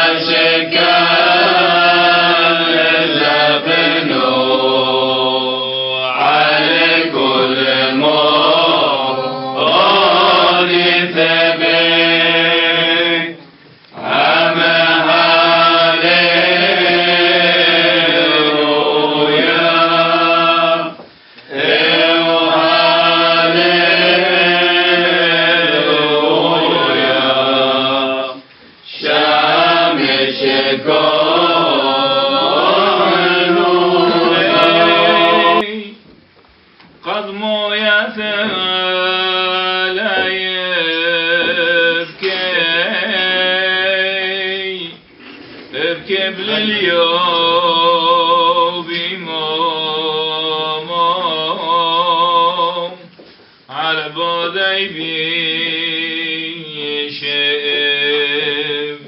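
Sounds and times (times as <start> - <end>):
man chanting unaccompanied: 37.0 - 45.0, 45.8 - 53.1.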